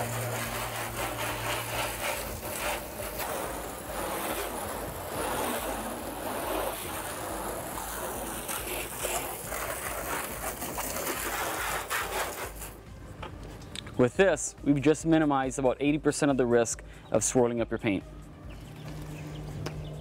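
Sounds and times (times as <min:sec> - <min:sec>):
hose nozzle spraying water: 0:00.0 - 0:12.8.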